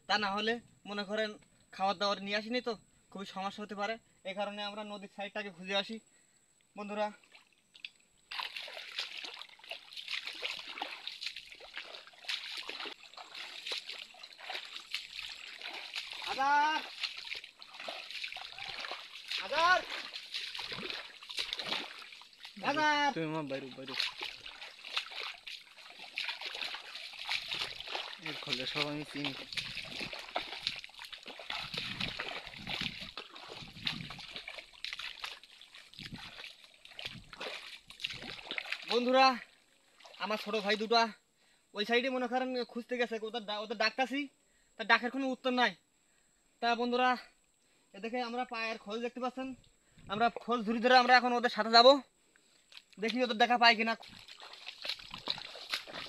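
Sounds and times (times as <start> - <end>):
footsteps squelching through mud: 7.2 - 40.9, 49.6 - 51.6, 52.4 - 56.0
shallow water splashing: 7.2 - 40.9, 53.8 - 56.0.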